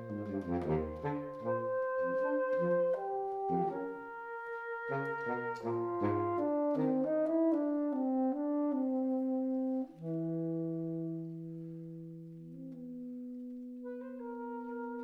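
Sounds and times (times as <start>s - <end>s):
saxophone quartet holding chords: 0.0s - 15.0s.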